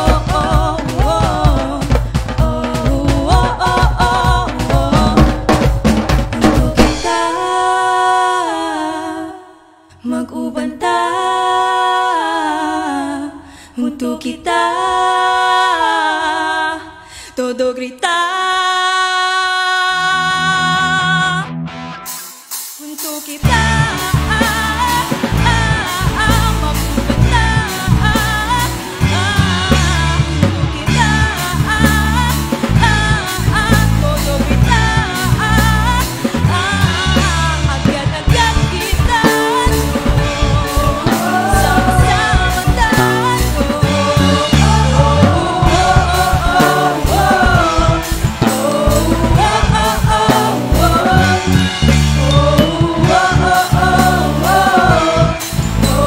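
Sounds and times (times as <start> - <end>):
person singing: 0.0 - 5.7, 6.3 - 21.5, 22.8 - 56.0
steady drum beat: 0.0 - 7.5, 23.4 - 56.0
band playing: 0.0 - 7.8, 23.4 - 56.0.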